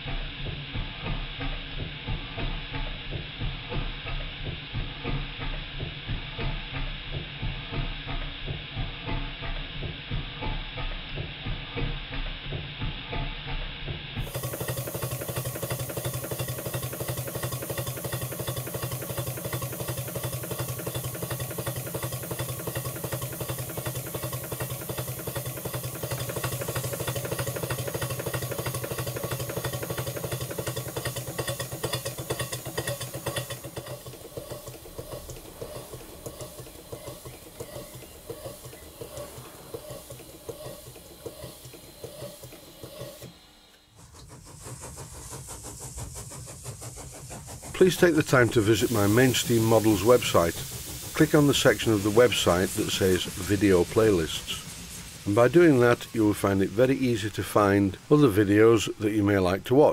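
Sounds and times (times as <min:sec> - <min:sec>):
model steam engine running: 0:00.0 - 0:59.9.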